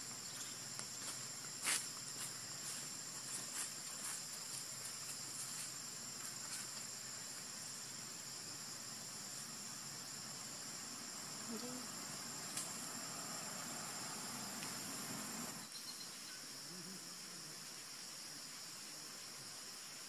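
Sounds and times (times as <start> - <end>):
insects droning: 0.0 - 20.0
hiss: 12.5 - 15.6.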